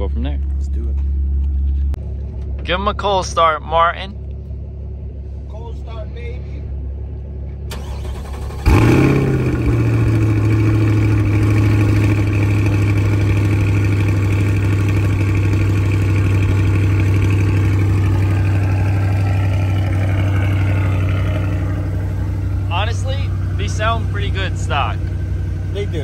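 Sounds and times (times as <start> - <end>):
car engine cold start and idle: 7.6 - 26.0.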